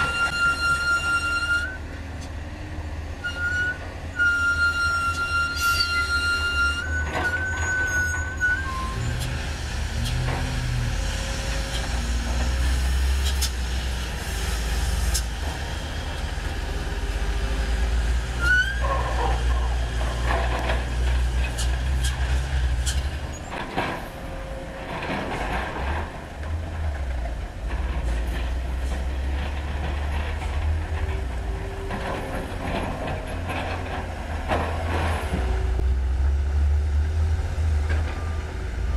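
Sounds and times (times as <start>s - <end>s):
rising squeal: 0.0s - 1.8s, 3.2s - 9.4s, 18.4s - 19.2s
truck diesel engines droning: 0.0s - 38.9s.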